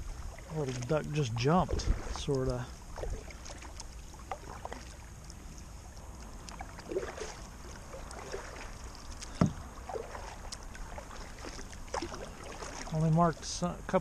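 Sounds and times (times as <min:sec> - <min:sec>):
paddle dipping and splashing: 0:00.0 - 0:13.7
small knocks: 0:09.3 - 0:09.6.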